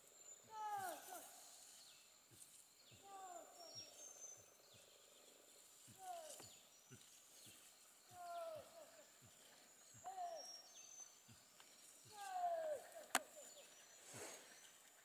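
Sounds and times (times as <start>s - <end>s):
faint insect drone: 0.0s - 15.0s
bird descending call: 10.0s - 10.9s, 12.1s - 14.5s.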